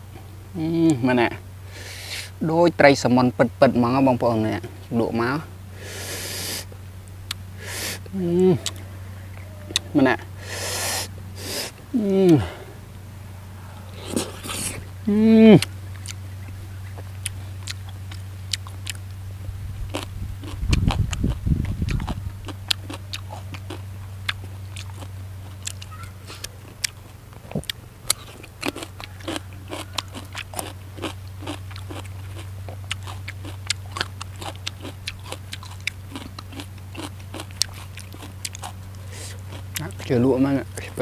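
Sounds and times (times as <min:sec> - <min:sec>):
person crunching raw vegetables: 0:06.0 - 0:08.8, 0:13.6 - 0:41.0
low rumble: 0:11.1 - 0:25.9.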